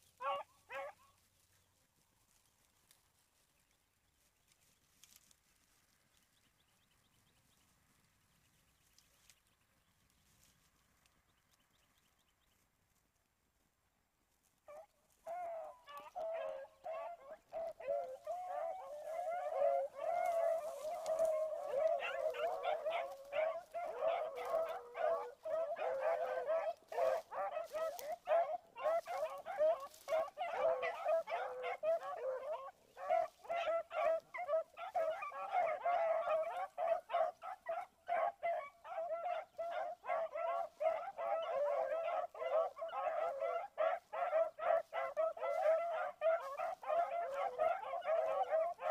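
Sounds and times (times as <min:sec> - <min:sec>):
hounds baying: 0:00.1 - 0:01.2, 0:14.6 - 0:48.9.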